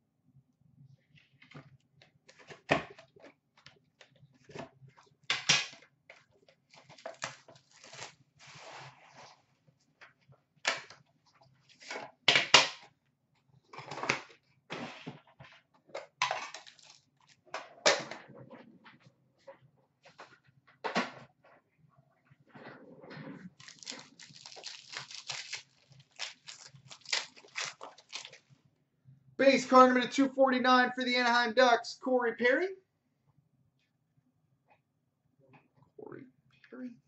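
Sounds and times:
plastic wrap crinkling and tearing: 6.7s - 8.2s, 16.4s - 17.4s, 23.6s - 28.5s.

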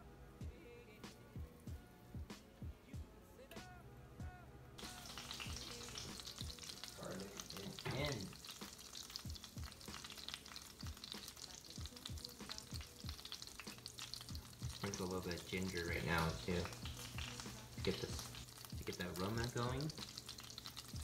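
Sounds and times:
butter and oil sizzling in pan: 4.8s - 21.0s.

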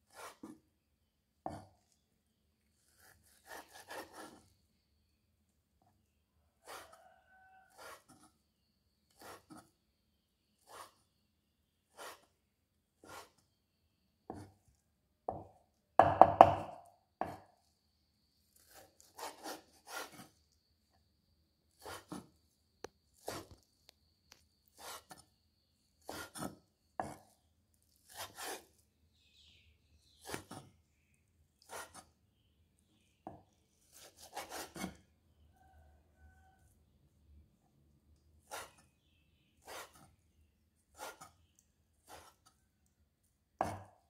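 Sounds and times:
cleaver chopping meat on wood: 15.3s - 17.4s, 43.6s - 44.0s.

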